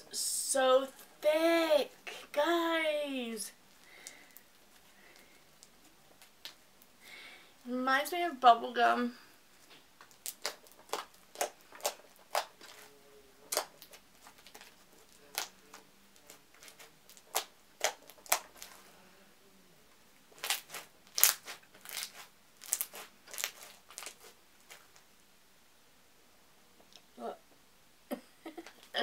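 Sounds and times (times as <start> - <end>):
slime squishing and popping: 10.0 - 12.9, 13.5 - 18.8, 20.4 - 24.9.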